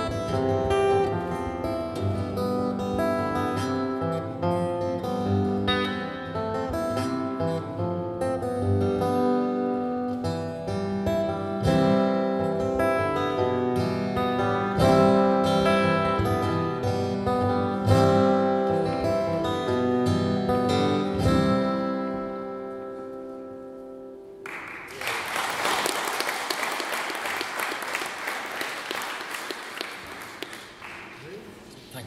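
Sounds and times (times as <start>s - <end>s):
acoustic guitar strumming: 0.0s - 24.8s
audience applauding: 24.4s - 31.7s.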